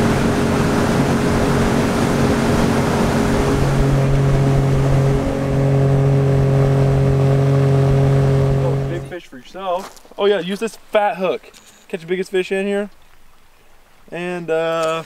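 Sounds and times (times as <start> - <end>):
outboard motor running: 0.0 - 9.2
wind and water rushing: 0.0 - 15.0.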